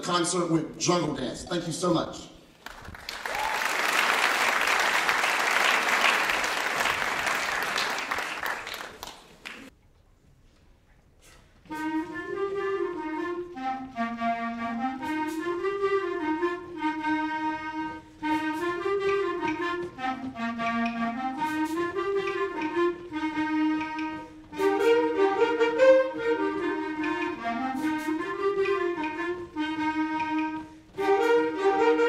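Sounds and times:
audience applause: 2.6s - 9.7s
wind band playing: 3.3s - 9.0s, 11.6s - 32.0s
woodwind melody: 11.6s - 32.0s.

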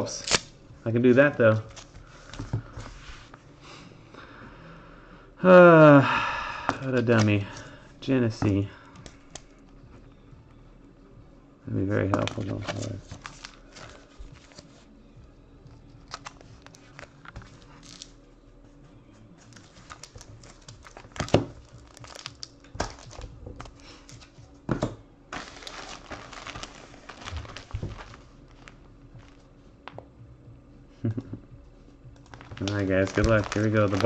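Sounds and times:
padded envelope tearing and crinkling: 0.1s - 0.5s, 12.3s - 14.7s, 16.0s - 18.2s, 19.5s - 24.3s, 25.4s - 29.4s, 32.2s - 34.0s.

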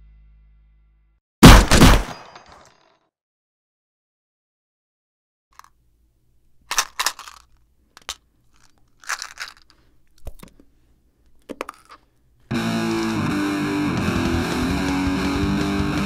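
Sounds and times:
short crunching noises: 6.6s - 12.3s.

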